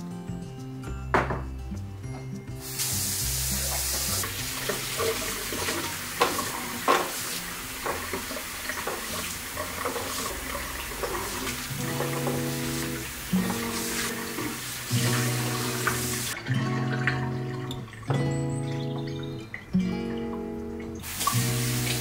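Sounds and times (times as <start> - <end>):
tap water running into sink: 2.6 - 18.0, 20.9 - 22.0.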